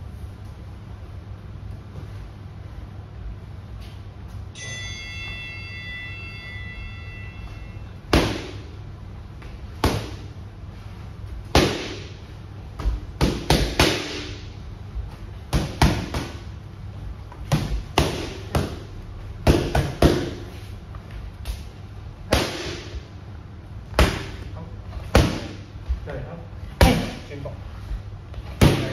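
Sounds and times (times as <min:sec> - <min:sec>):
boxing gloves smacking mitts: 0:11.4 - 0:12.2, 0:12.8 - 0:14.5, 0:15.4 - 0:16.5, 0:17.3 - 0:20.5.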